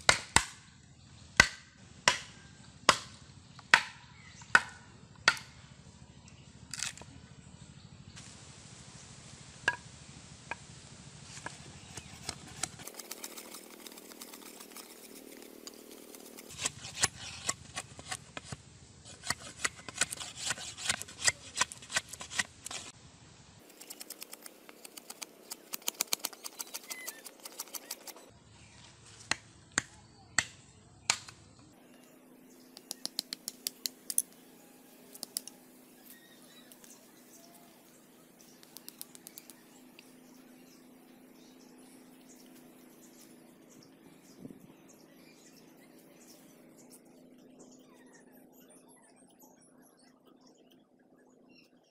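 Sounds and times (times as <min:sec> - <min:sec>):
blade chopping bamboo: 0:00.0 - 0:00.7, 0:01.4 - 0:05.6, 0:11.3 - 0:23.0, 0:23.8 - 0:28.1, 0:29.2 - 0:31.4.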